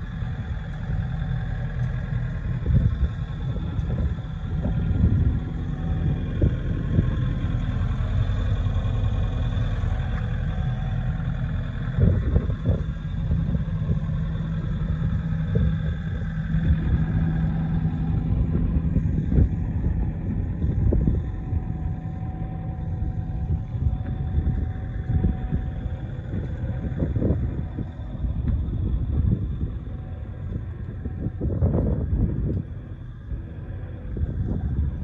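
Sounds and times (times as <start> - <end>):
excavator diesel engine idling: 0.0 - 35.0.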